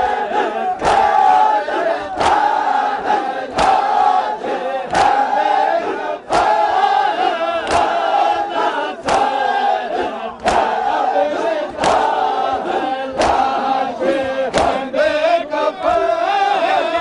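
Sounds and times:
men chanting in unison: 0:00.0 - 0:17.0
hands beating chests: 0:00.8 - 0:01.4, 0:02.1 - 0:02.7, 0:03.5 - 0:04.1, 0:04.9 - 0:05.4, 0:07.6 - 0:08.4, 0:09.0 - 0:09.5, 0:10.4 - 0:11.1, 0:11.7 - 0:13.7, 0:14.4 - 0:14.9.

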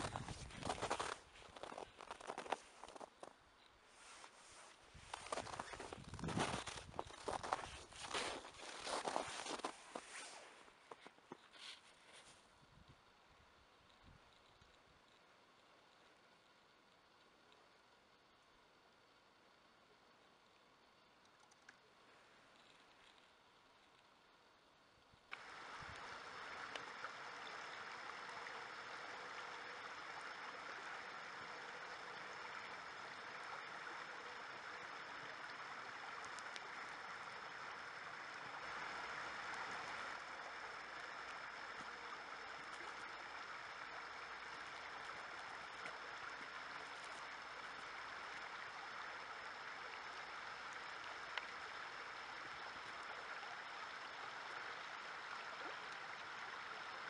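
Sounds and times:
river flowing: 0:00.0 - 0:11.2, 0:25.3 - 0:57.0.

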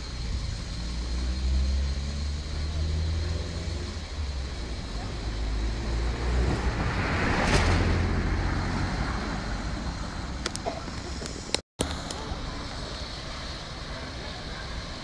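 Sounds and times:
low traffic rumble: 0:00.0 - 0:15.0
vehicle passing: 0:00.6 - 0:10.4.

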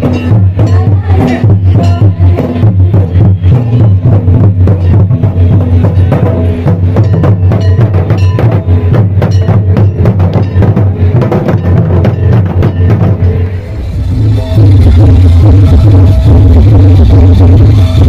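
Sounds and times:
barrel drums played loudly: 0:00.0 - 0:18.0
steady deep hum: 0:13.2 - 0:18.0.

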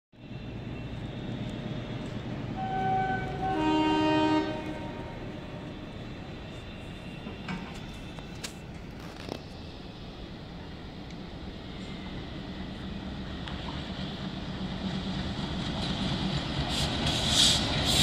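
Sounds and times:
train horn two-note blast: 0:02.6 - 0:05.8.

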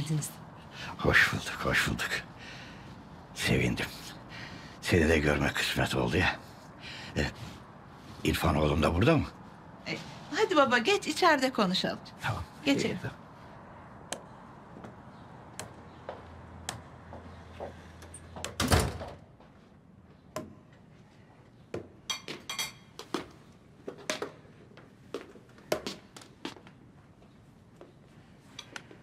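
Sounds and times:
door shutting: 0:18.5 - 0:19.2.

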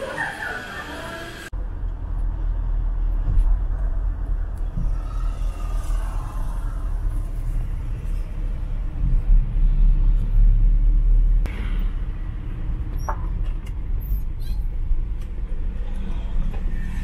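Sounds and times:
engine and road rumble: 0:00.0 - 0:17.0.

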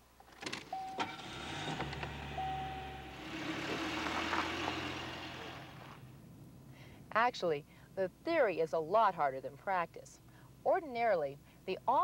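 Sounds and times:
car driving past: 0:01.0 - 0:06.1
short high tones: 0:02.3 - 0:03.3.

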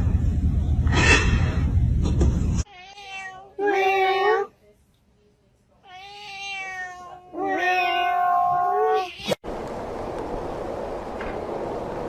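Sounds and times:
cat meowing: 0:02.7 - 0:04.5, 0:05.9 - 0:09.4.

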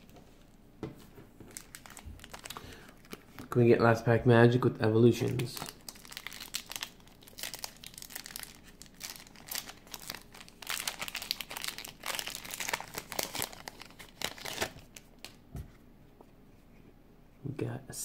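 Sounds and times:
foil wrapper crinkling: 0:01.4 - 0:03.6, 0:05.2 - 0:15.4.

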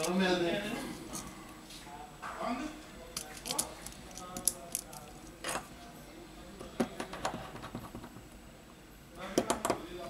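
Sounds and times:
small parts clicking and tapping: 0:03.2 - 0:05.6.

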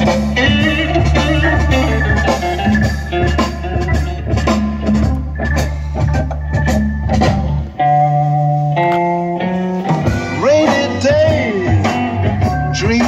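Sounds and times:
blues-rock music with electric guitar: 0:00.0 - 0:13.0.

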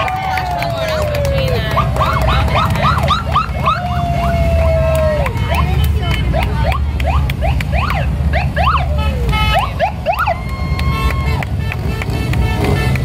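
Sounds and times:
rising and falling siren whoops: 0:00.0 - 0:05.3, 0:09.8 - 0:11.4
motorcycle engines rumbling: 0:00.0 - 0:13.0.

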